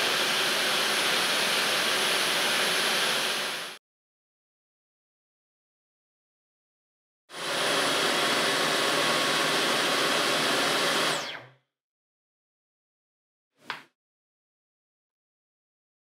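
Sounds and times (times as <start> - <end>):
vacuum motor whine: 0.0 - 3.8, 7.4 - 11.5.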